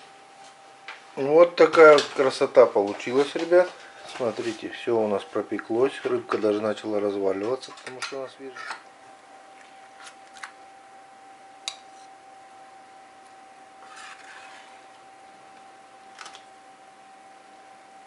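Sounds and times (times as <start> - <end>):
faint steady hum: 0.0 - 18.0
metal spatula scraping baking tray: 13.8 - 14.9.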